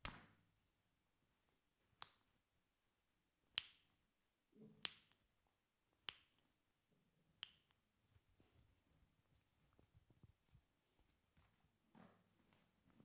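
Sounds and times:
finger snaps: 0:02.0 - 0:02.3, 0:03.5 - 0:04.0, 0:04.8 - 0:05.3, 0:06.0 - 0:06.5, 0:07.4 - 0:07.8.

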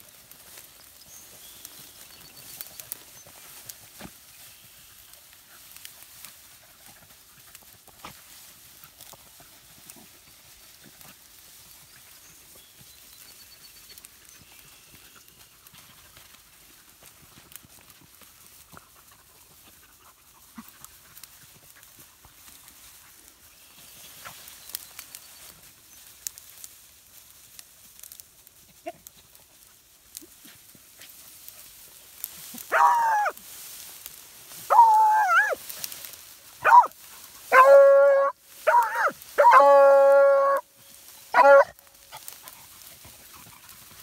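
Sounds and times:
hound baying: 0:32.5 - 0:33.4, 0:34.7 - 0:35.6, 0:36.6 - 0:40.7, 0:41.3 - 0:42.8.

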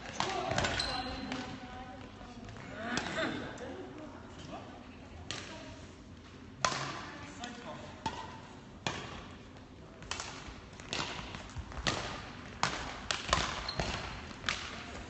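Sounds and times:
rackets hitting shuttlecock: 0:00.0 - 0:01.6, 0:06.6 - 0:09.3, 0:10.0 - 0:14.9.

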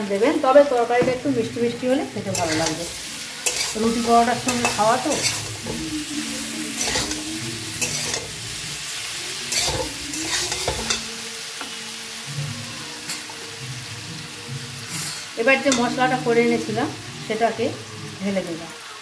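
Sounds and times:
vegetables sizzling in oil: 0:00.0 - 0:19.0
spatula scraping pan: 0:02.2 - 0:08.7, 0:09.4 - 0:11.1.

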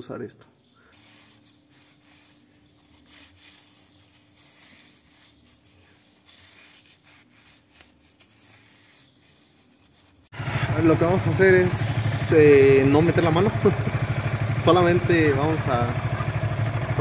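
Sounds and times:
rag rubbing a chain: 0:00.9 - 0:10.3.

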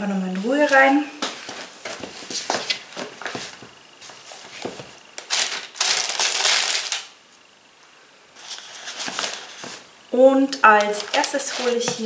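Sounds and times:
paper packaging rustling: 0:00.6 - 0:07.1, 0:08.4 - 0:09.9, 0:10.7 - 0:12.0.

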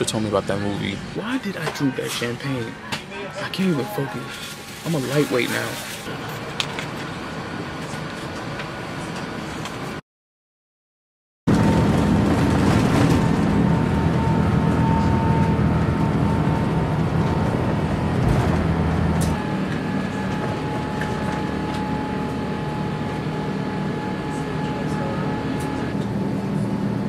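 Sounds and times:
jet engines roaring: 0:11.5 - 0:27.0.

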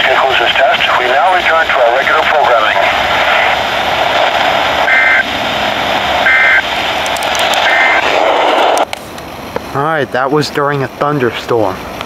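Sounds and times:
radio static hiss: 0:00.0 - 0:08.9
warbling two-tone data bursts: 0:04.8 - 0:06.7, 0:07.6 - 0:08.0.

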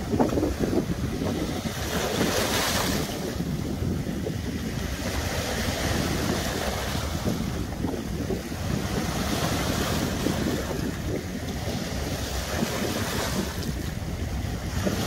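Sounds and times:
waves washing among rocks: 0:00.0 - 0:15.0.

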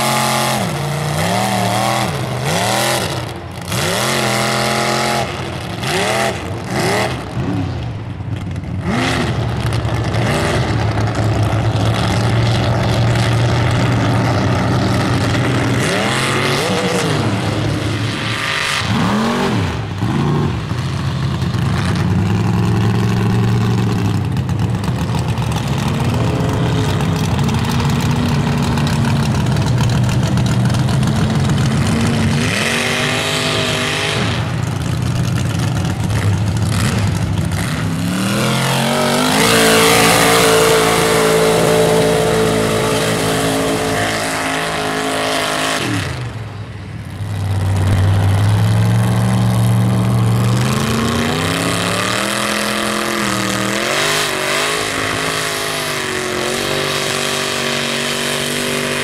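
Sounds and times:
truck engines revving hard: 0:00.0 - 0:59.0.

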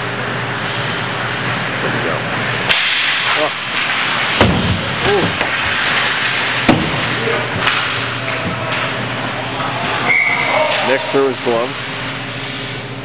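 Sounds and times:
hockey sticks hitting puck: 0:02.6 - 0:12.8
players shouting: 0:07.0 - 0:11.4.

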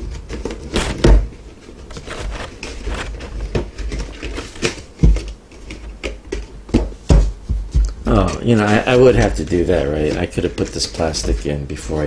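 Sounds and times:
cardboard box handling clicks and rustles: 0:00.0 - 0:07.2.

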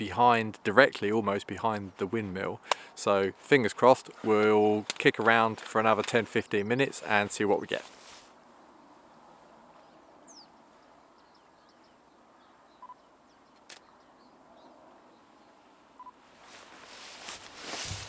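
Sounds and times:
padded jacket rustling: 0:07.8 - 0:08.3, 0:16.4 - 0:18.0
faint bird chirps: 0:09.8 - 0:16.2
brief beeps: 0:12.8 - 0:13.0
sharp click: 0:13.6 - 0:13.9.

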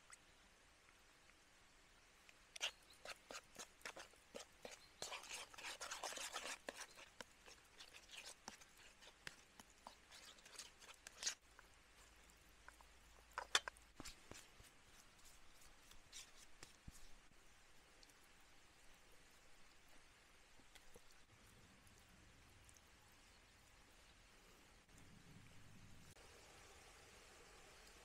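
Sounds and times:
wet squishing paste: 0:02.5 - 0:17.3.

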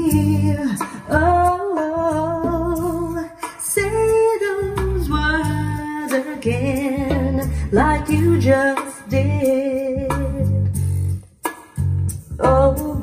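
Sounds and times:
pop ballad through speakers: 0:00.0 - 0:13.0
steady bass line: 0:00.0 - 0:13.0.

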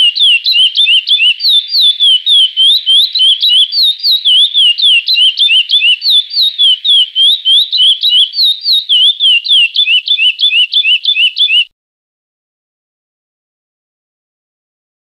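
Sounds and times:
finch singing whistled notes: 0:00.0 - 0:11.7.

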